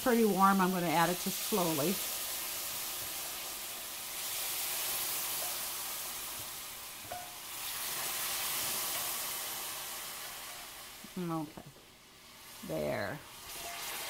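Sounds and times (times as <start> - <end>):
broth sizzling in a pan: 0.0 - 14.0.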